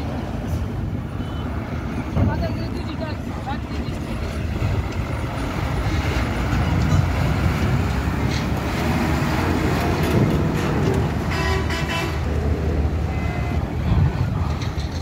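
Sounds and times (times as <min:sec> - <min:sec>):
bus engine running: 0:00.0 - 0:15.0
vehicle horn honk: 0:11.3 - 0:12.2.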